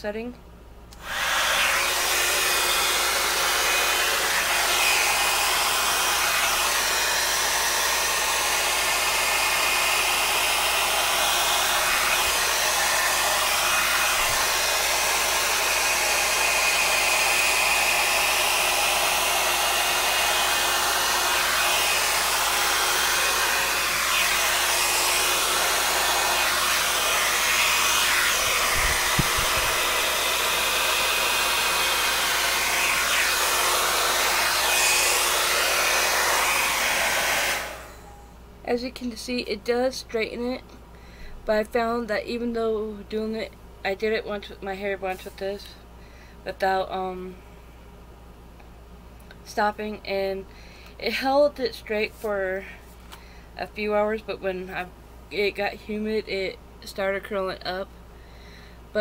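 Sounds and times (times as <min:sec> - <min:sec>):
hair dryer brush blowing: 0:01.0 - 0:38.3.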